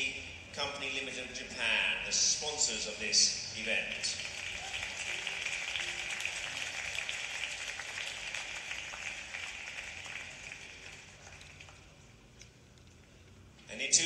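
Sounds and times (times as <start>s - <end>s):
audience applauding: 3.8s - 12.2s.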